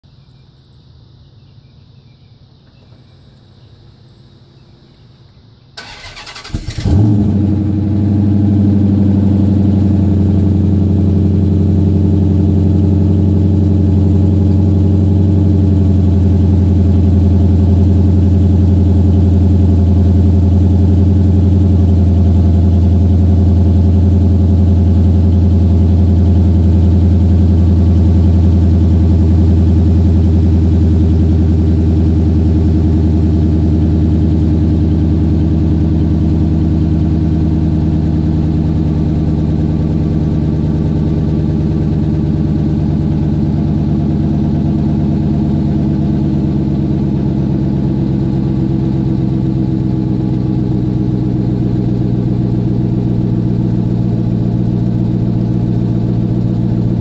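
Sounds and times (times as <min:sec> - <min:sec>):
starter motor cranking: 0:05.8 - 0:07.0
car engine revving and idling: 0:05.8 - 0:57.0.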